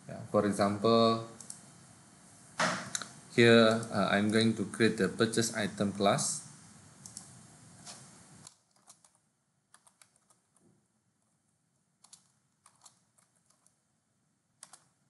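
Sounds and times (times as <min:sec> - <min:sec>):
computer keyboard typing: 0:01.4 - 0:01.6, 0:07.0 - 0:10.6, 0:12.0 - 0:13.8, 0:14.6 - 0:15.0.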